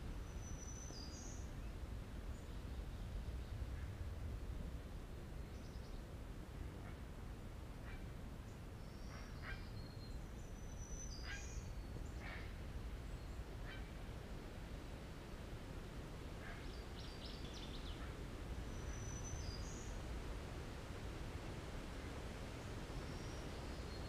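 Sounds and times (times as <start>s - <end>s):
low background rumble: 0.0s - 24.0s.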